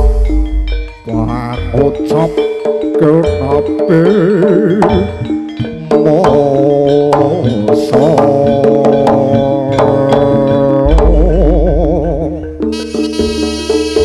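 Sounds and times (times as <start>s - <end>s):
drum strokes: 0.0s - 14.0s
gamelan music: 0.0s - 14.0s
wavering melody with vibrato: 0.0s - 14.0s
deep low boom: 10.9s - 12.3s.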